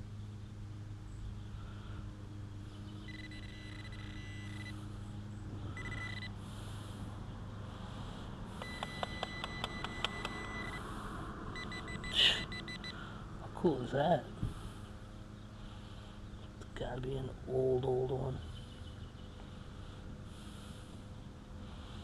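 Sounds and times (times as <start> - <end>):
metal detector beeping: 3.0 - 4.9, 5.7 - 6.4, 8.6 - 10.9, 11.6 - 13.0.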